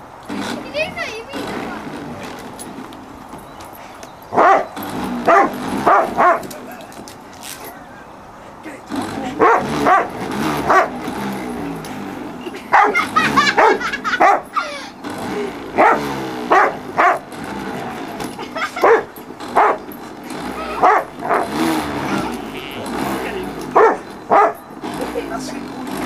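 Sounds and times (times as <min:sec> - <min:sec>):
mower motor humming: 0:00.0 - 0:26.0
dog barking: 0:04.3 - 0:06.6, 0:09.4 - 0:11.0, 0:12.7 - 0:14.6, 0:15.8 - 0:17.3, 0:18.7 - 0:19.9, 0:20.6 - 0:22.4, 0:23.7 - 0:24.7.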